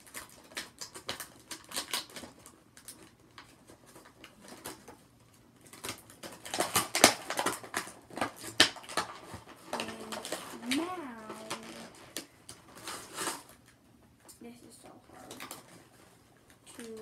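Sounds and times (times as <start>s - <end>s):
plastic packaging crinkling: 0.0s - 13.8s, 15.1s - 17.0s
plastic snapping: 5.7s - 12.6s.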